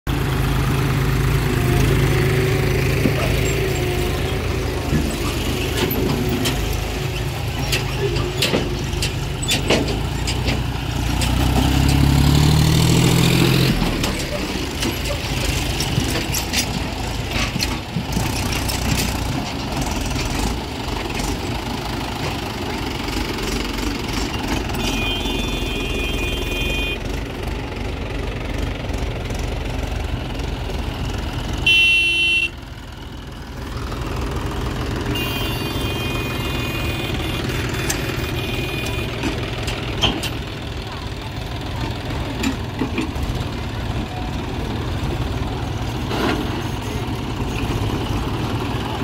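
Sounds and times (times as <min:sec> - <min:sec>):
tractor diesel engines rumbling: 0:00.0 - 0:49.0
loud horn blast: 0:24.8 - 0:27.0, 0:31.6 - 0:32.6, 0:35.1 - 0:39.2.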